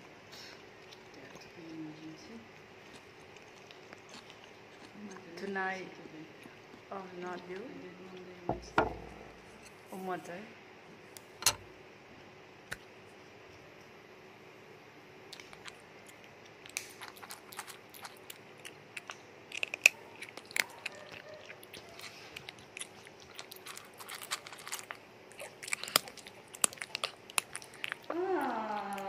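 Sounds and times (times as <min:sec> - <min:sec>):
rat gnawing and crunching: 0:00.0 - 0:10.1, 0:15.2 - 0:29.0.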